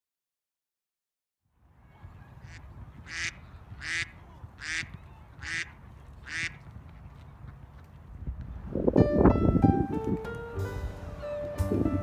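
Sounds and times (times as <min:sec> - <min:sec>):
duck quacking: 0:02.4 - 0:06.6.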